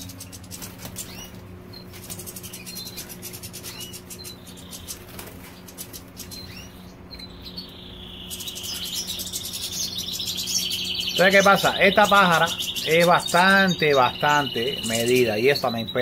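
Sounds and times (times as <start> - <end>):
wing flutters: 0.0 - 6.4
bird twittering song: 0.0 - 16.0
low steady hum: 0.0 - 16.0.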